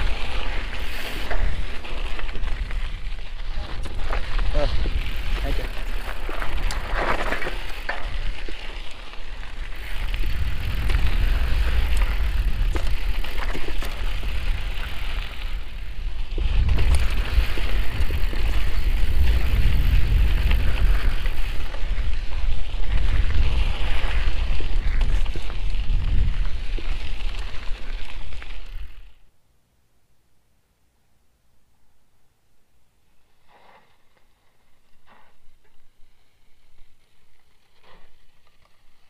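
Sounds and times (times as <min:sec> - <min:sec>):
tyres crunching on gravel: 0:00.0 - 0:29.0
bike rattling and clicking: 0:00.0 - 0:29.1, 0:36.6 - 0:39.0.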